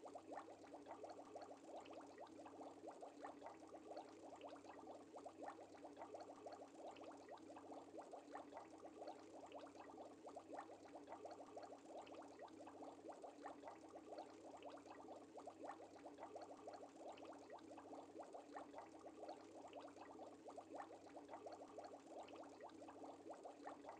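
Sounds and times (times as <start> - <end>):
aquarium bubbling: 0.0 - 23.9.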